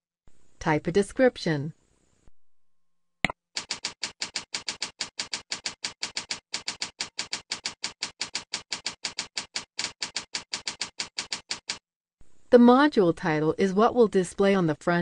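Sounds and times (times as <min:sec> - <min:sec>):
keyboard typing: 0:03.6 - 0:11.8.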